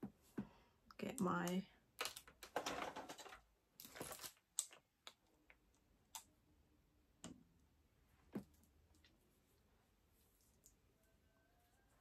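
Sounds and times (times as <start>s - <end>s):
soft rustle: 8.2s - 11.0s.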